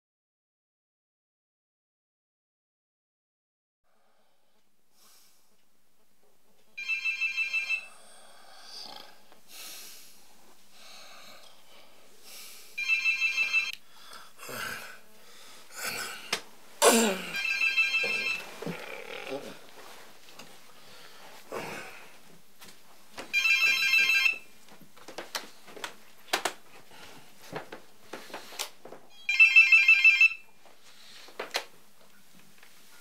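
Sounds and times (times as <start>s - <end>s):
telephone ringing: 6.8s - 7.9s, 12.8s - 13.8s, 17.2s - 18.8s, 23.3s - 24.6s, 29.1s - 30.6s
soft rustling: 17.6s - 21.5s.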